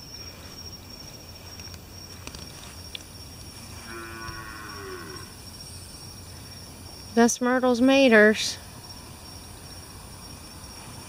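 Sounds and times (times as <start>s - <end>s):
crickets trilling: 0.0s - 11.0s
cow mooing: 3.8s - 5.3s.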